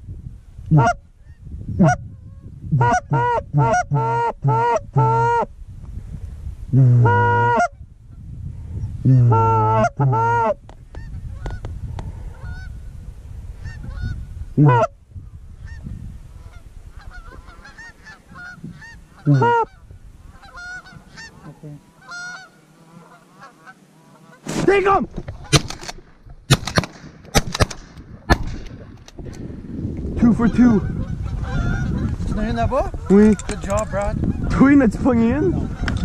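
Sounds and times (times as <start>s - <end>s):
loud close goose honks: 2.8s - 5.5s, 16.4s - 24.5s, 30.5s - 32.5s
distant flock of geese honking: 12.3s - 12.8s, 16.4s - 24.5s, 30.7s - 33.7s.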